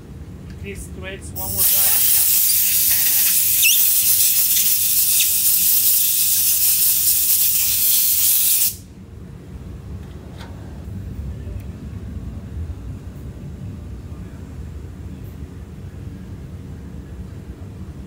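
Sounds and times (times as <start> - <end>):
compressed air blow gun hissing: 1.4 - 8.8.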